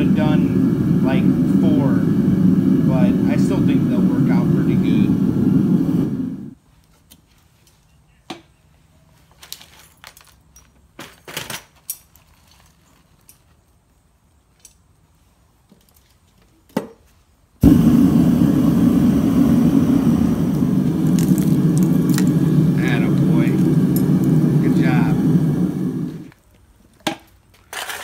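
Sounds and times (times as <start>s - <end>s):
loud low rumble: 0.0s - 6.6s, 17.6s - 26.3s.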